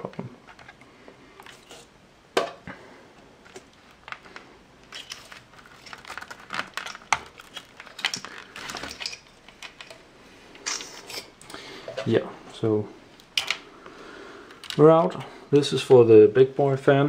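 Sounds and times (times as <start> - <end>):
cable rustling: 3.4 - 15.3.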